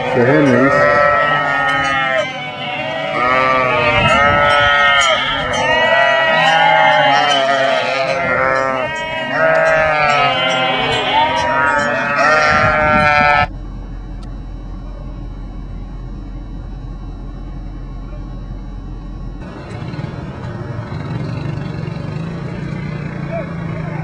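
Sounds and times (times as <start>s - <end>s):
sheep bleating: 0.0s - 13.5s
faint high tones: 0.0s - 19.8s
steady hum: 0.0s - 23.2s.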